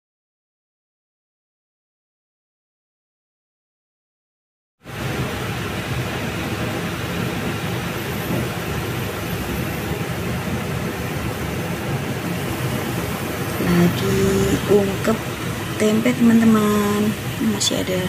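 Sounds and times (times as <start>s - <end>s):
pot simmering: 5.0s - 18.0s.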